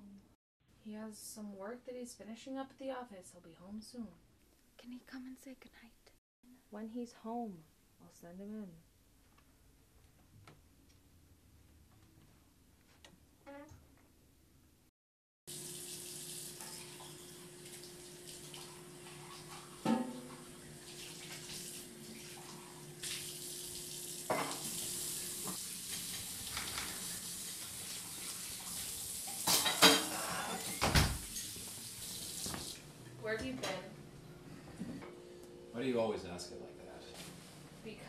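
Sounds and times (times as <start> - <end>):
faucet running into sink: 15.5 - 32.8
dishes clinking against sink: 19.1 - 20.5, 24.3 - 24.7, 29.3 - 31.6.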